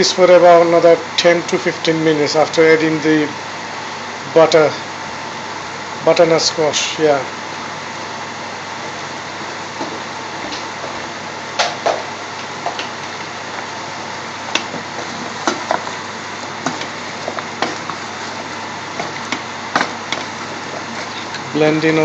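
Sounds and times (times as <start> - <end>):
wooden spoon scraping a pot: 14.6 - 21.6.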